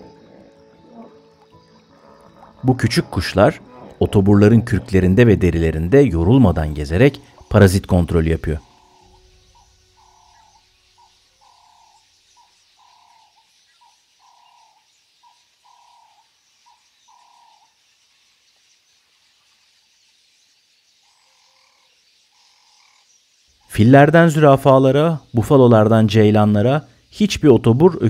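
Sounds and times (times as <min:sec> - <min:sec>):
faint animal calls: 0:00.0 - 0:07.6, 0:08.4 - 0:17.8.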